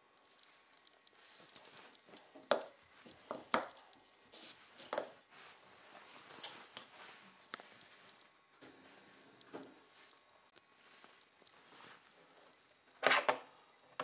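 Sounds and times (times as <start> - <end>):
wooden blocks knocking and rubbing: 2.0 - 3.9.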